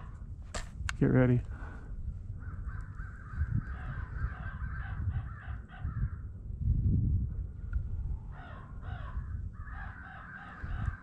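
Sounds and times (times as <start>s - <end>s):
low microphone rumble: 0.0s - 11.0s
crows cawing: 2.4s - 6.3s, 8.3s - 11.0s.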